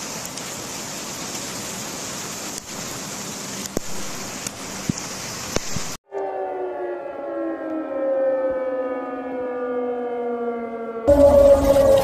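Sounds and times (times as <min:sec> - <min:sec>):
rain and floodwater rushing: 0:00.0 - 0:06.0, 0:11.1 - 0:12.0
siren falling in pitch: 0:06.1 - 0:12.0.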